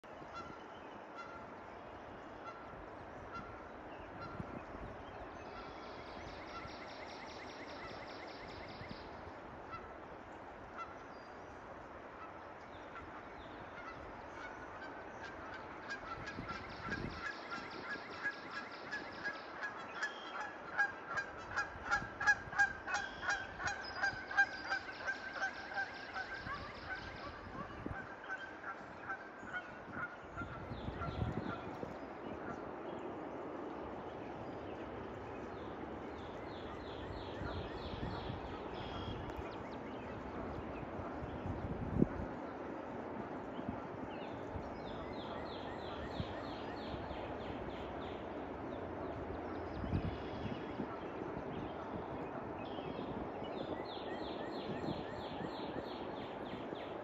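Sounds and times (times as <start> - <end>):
geese honking: 1.2 - 1.5, 13.8 - 31.8.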